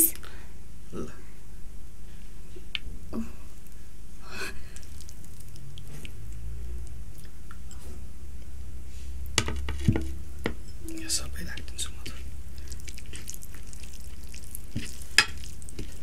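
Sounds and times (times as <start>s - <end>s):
steady low hum: 0.0s - 16.0s
hands mixing food on plates: 4.4s - 8.0s, 8.9s - 16.0s.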